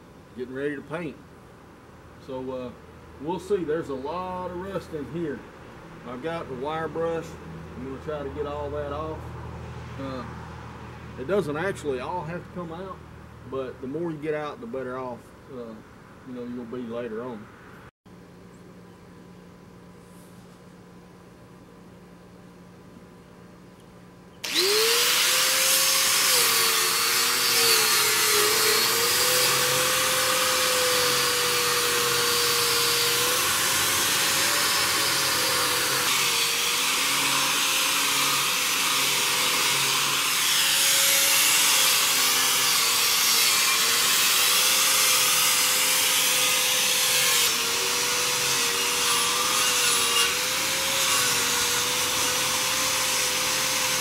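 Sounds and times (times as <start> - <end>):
angle grinder motor whine: 24.4 - 54.0
wire brush scrubbing metal: 24.4 - 54.0.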